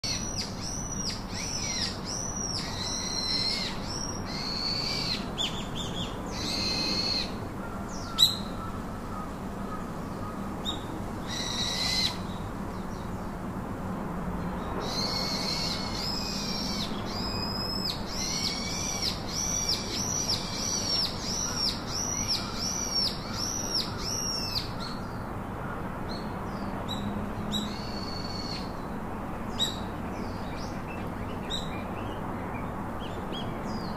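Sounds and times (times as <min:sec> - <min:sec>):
bird calling: 0:00.0 - 0:12.4, 0:14.8 - 0:25.0.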